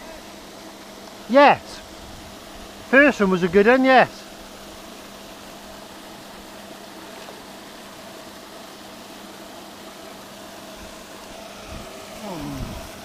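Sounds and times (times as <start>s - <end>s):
aerator humming: 0.0s - 13.0s
bubbling churned water: 4.2s - 13.0s.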